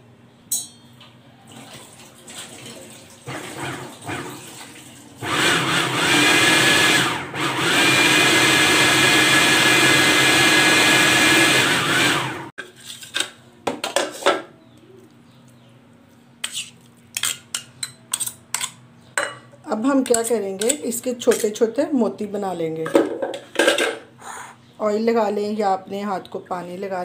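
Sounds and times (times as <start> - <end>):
electric food chopper whining: 3.3 - 4.4, 5.2 - 12.5.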